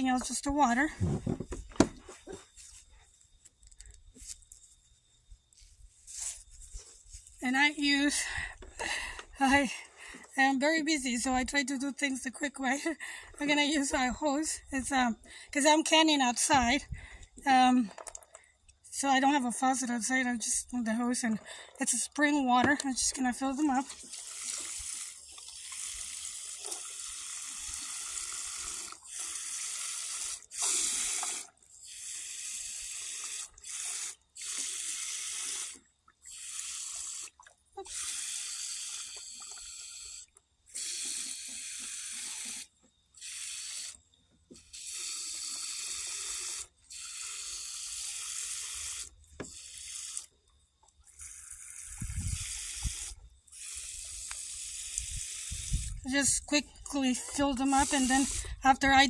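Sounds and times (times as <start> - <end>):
hose nozzle spraying water into jars: 0.0 - 10.4, 17.4 - 59.0.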